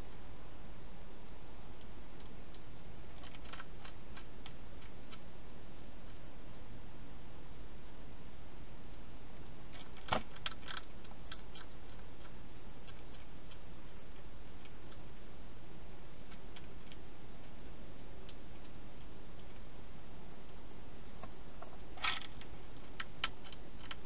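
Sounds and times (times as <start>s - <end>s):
hedgehog crunching dry food: 2.2s - 6.3s, 9.7s - 15.2s, 21.6s - 24.0s.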